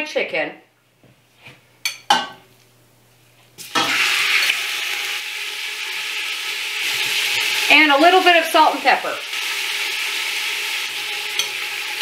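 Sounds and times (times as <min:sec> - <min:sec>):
chicken sizzling in hot oil: 0:03.6 - 0:12.0.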